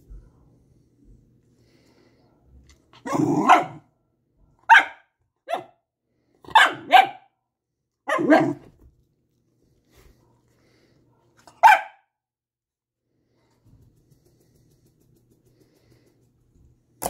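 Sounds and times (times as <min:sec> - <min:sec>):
dog barking: 0:03.0 - 0:03.9, 0:04.6 - 0:05.8, 0:06.4 - 0:07.4, 0:08.0 - 0:08.7, 0:11.2 - 0:12.1.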